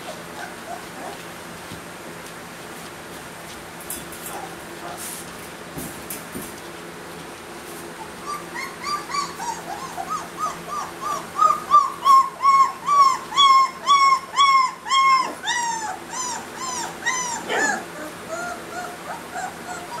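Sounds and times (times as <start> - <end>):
puppy whimpering: 0.0 - 1.2, 8.0 - 20.0.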